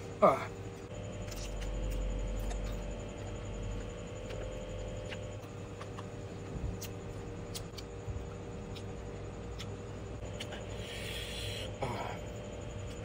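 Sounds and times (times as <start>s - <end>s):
steady low hum: 0.0s - 13.0s
chewing crisp fruit: 1.2s - 11.2s.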